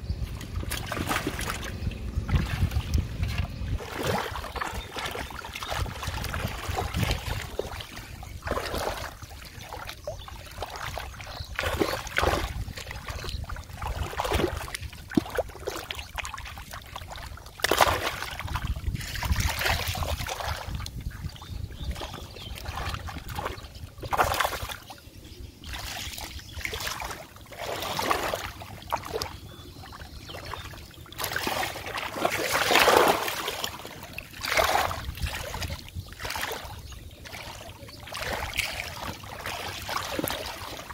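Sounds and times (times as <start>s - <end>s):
steady low rumble: 0.0s - 32.4s
water splashing: 0.2s - 25.0s, 25.6s - 40.9s.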